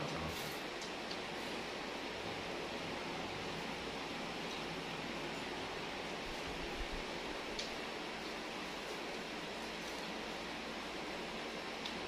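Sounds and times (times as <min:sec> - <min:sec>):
steady background hiss: 0:00.0 - 0:12.0.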